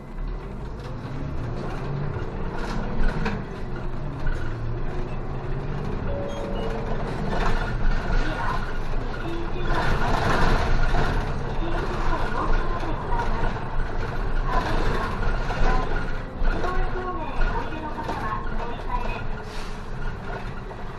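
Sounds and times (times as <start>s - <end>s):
bus engine accelerating: 0.0s - 20.9s.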